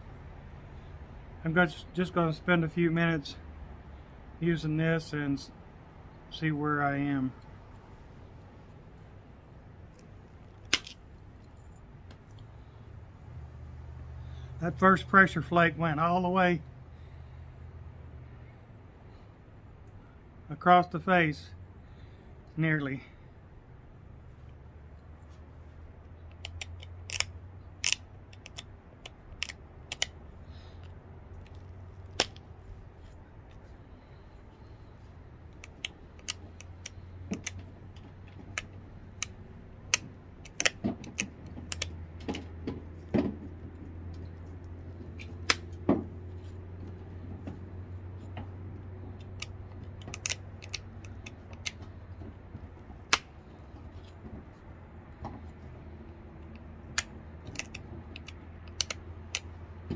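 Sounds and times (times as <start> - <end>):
steady low hum: 0.0 - 59.9
flint flakes snapping off: 49.2 - 51.8.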